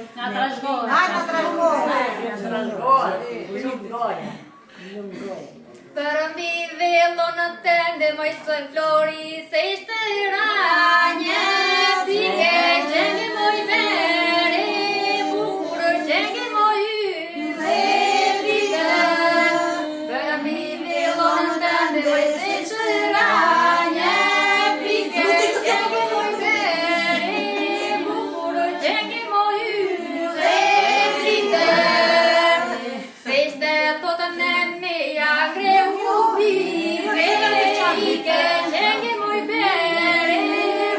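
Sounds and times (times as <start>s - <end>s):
women singing unaccompanied: 6.0s - 40.9s.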